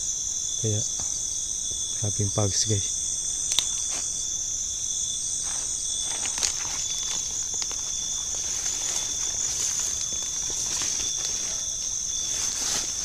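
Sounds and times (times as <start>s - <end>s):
night insects trilling: 0.0s - 13.0s
faint steps through undergrowth: 5.4s - 13.0s.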